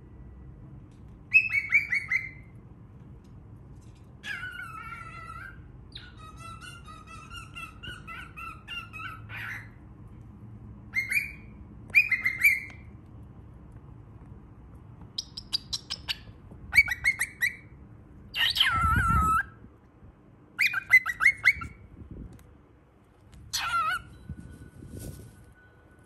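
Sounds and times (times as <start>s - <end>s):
baby cockatiel chirping: 1.3s - 2.5s, 4.2s - 9.8s, 10.9s - 12.8s, 15.2s - 17.7s, 18.3s - 19.6s, 20.6s - 21.8s, 23.5s - 24.2s
cockatiel call falling in pitch: 23.5s - 24.1s.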